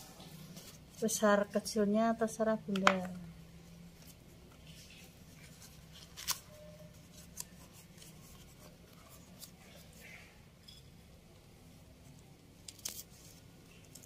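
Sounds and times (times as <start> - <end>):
leaf crinkling and rubbing: 4.0 - 10.2.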